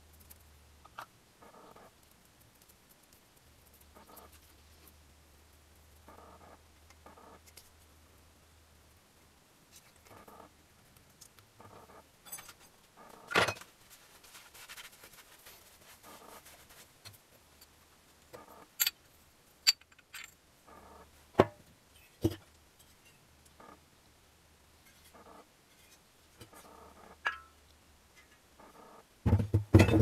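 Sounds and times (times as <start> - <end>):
quiet rustling: 9.6 - 23.8, 24.8 - 29.0
metal parts clicking and clinking: 18.8 - 19.0, 19.6 - 20.4.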